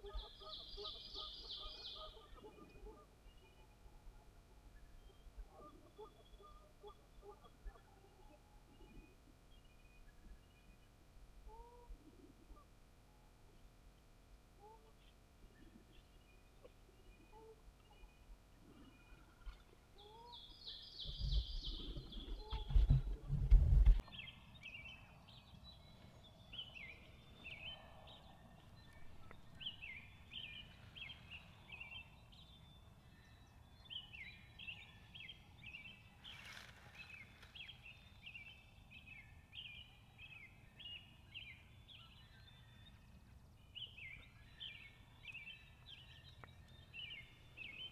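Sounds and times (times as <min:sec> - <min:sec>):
songbird singing falling chirps: 0:14.6 - 0:23.2, 0:24.0 - 0:47.9.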